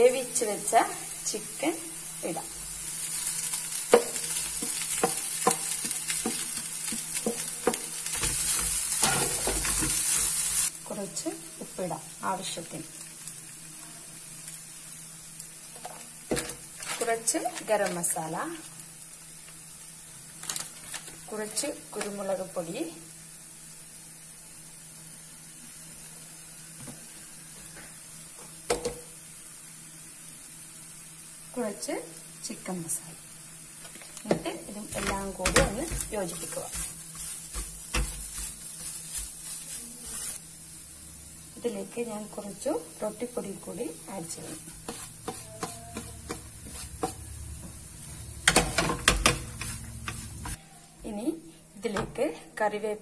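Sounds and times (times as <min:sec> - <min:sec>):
food sizzling in oil: 0:00.0 - 0:51.9
faint steady hiss: 0:00.0 - 0:53.0
spatula scraping pan: 0:34.9 - 0:40.4, 0:44.3 - 0:47.3, 0:48.5 - 0:50.6.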